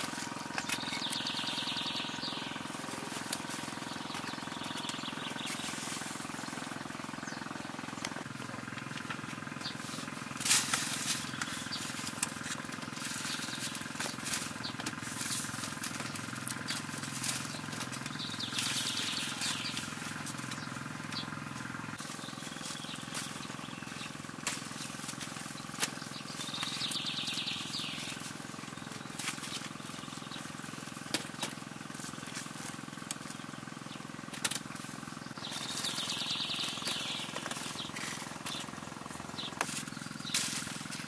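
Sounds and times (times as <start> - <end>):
leaves rustling: 0.0 - 41.0
steady low hum: 0.0 - 41.0
fruit snapping off: 34.3 - 34.6.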